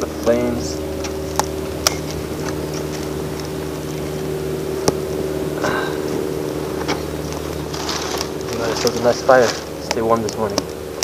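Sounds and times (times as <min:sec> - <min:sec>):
steady low hum: 0:00.0 - 0:11.0
campfire crackling and popping: 0:04.7 - 0:05.7, 0:06.8 - 0:11.0.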